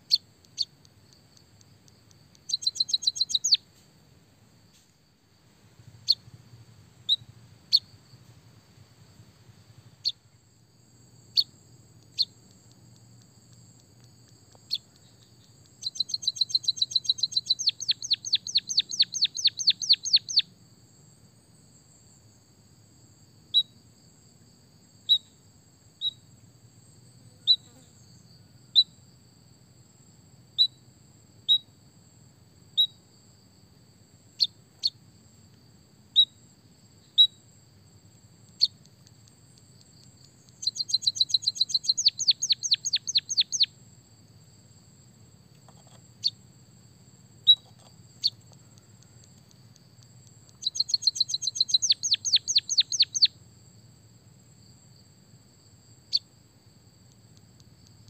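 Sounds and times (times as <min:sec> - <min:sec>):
bird trills: 0:02.4 - 0:03.6, 0:14.7 - 0:20.4, 0:40.4 - 0:43.7, 0:50.5 - 0:53.3
short high bird chirps: 0:02.4 - 0:03.6, 0:15.8 - 0:20.4, 0:40.4 - 0:43.7, 0:50.6 - 0:53.3.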